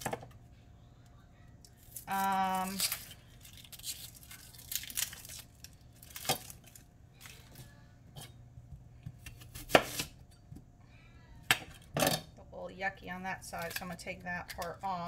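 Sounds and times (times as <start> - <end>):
onion skin crackling and tearing: 1.6 - 7.6.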